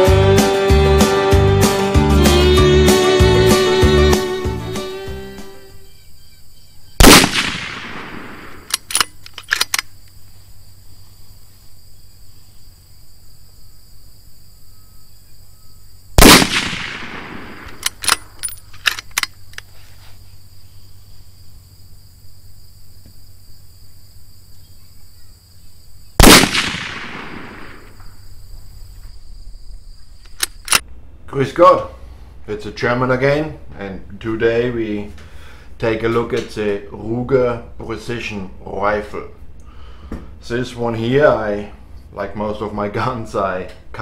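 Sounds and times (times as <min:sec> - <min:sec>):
rifle shots: 0:07.0 - 0:09.8, 0:16.2 - 0:19.0, 0:26.2 - 0:28.0
rifle bolt metallic clicks: 0:08.6 - 0:10.2, 0:17.6 - 0:19.7, 0:30.2 - 0:30.9.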